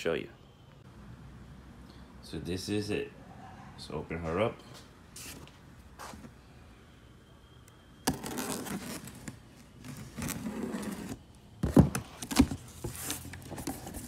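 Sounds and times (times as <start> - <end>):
box cutter slitting tape: 8.1 - 9.3.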